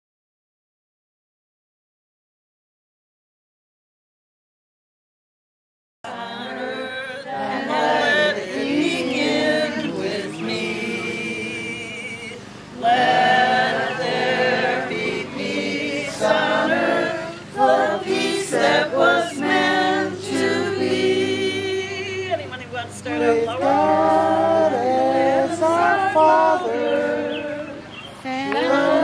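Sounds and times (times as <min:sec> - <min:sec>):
group singing unaccompanied: 0:06.0 - 0:29.0.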